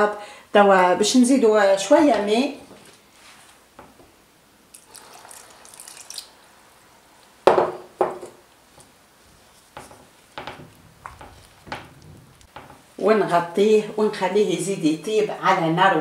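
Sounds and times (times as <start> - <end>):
water poured into pot: 4.7 - 6.6
spoon stirring thick soup: 8.7 - 12.8.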